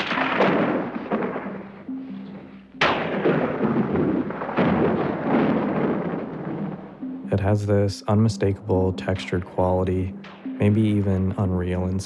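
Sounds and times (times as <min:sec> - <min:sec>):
thunder cracks rolling: 0:00.0 - 0:01.9, 0:02.8 - 0:07.5.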